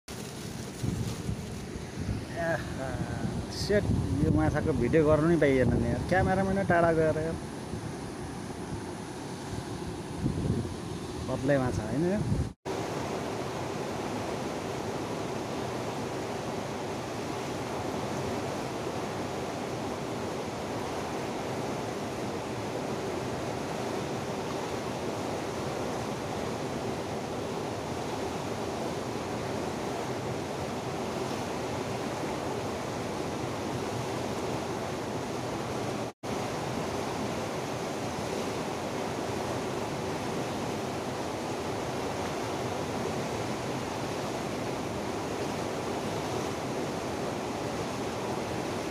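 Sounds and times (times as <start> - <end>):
river rushing over rocks: 12.7 - 48.9.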